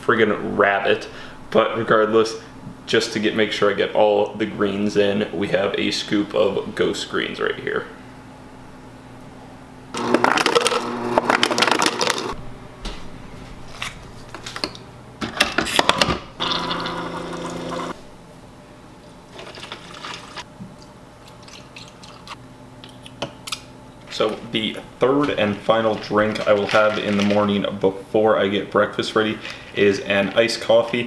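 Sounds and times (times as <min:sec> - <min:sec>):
coffee maker humming: 0:09.9 - 0:12.4, 0:16.4 - 0:18.0.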